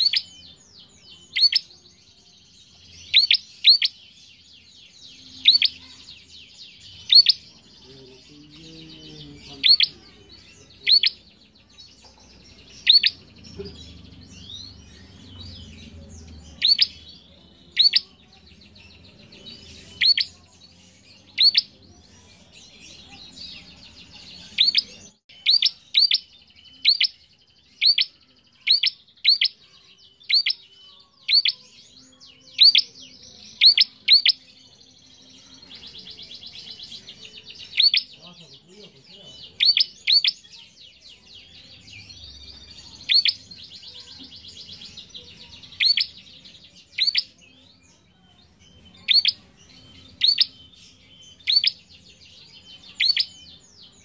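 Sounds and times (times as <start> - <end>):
soft bird twittering: 0.0 - 54.0
songbird sharp calls: 1.3 - 1.7, 3.1 - 4.0, 7.0 - 7.4, 9.6 - 10.0, 10.8 - 11.2, 12.8 - 13.2, 16.6 - 17.0, 27.8 - 29.6, 39.6 - 40.4, 49.0 - 49.4, 51.4 - 51.8.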